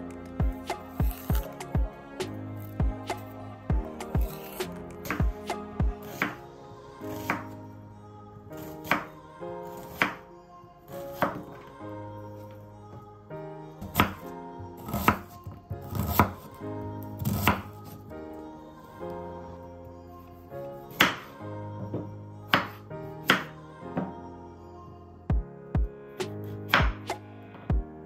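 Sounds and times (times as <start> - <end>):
soft background music: 0.0 - 28.0
knife chopping on wooden board: 17.2 - 17.6.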